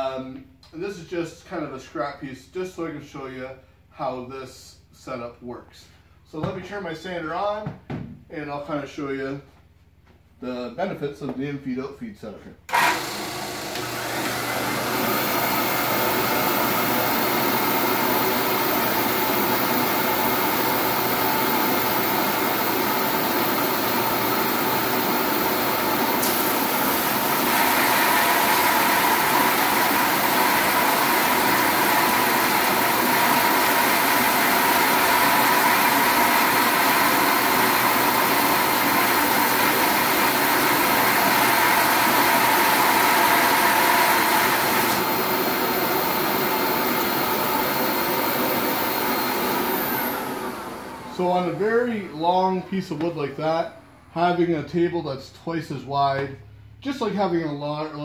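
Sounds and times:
drum sander humming: 12.7s - 53.0s.

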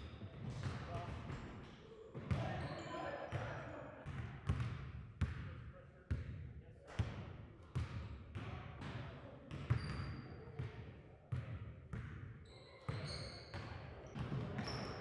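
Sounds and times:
sneaker squeaks: 2.1s - 3.4s, 9.5s - 10.6s, 12.4s - 15.0s
basketballs bouncing on hardwood: 4.0s - 5.5s, 13.0s - 14.8s.

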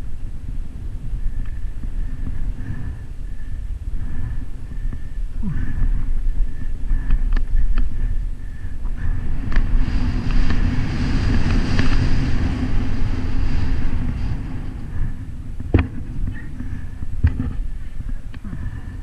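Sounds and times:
bike tyres rolling over dirt: 0.0s - 19.0s
wind rushing over microphone: 0.0s - 19.0s.

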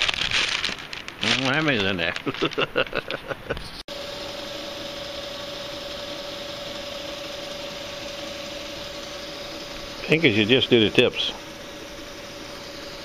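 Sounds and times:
electric motor humming: 3.9s - 13.0s.

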